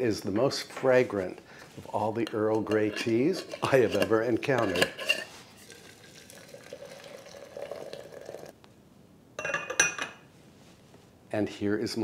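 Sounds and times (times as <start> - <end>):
teapot lid clinking: 2.3 - 8.5.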